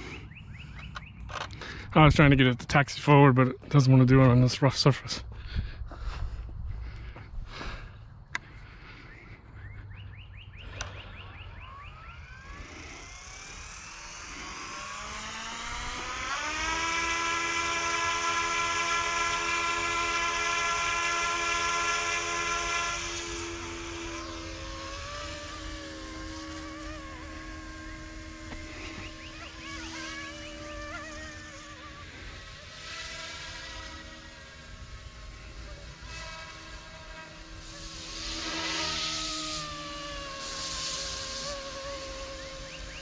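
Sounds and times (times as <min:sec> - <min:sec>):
rc helicopter rotor whine: 0:00.0 - 0:43.0.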